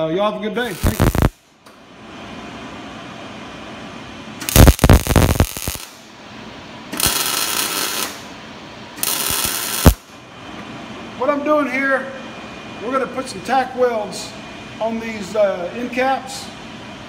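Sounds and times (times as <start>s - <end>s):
steady hiss: 0.6s - 1.4s, 4.4s - 6.1s, 9.0s - 10.1s
welding arc crackling: 0.6s - 1.4s, 4.4s - 6.1s, 6.9s - 8.3s, 9.0s - 10.1s.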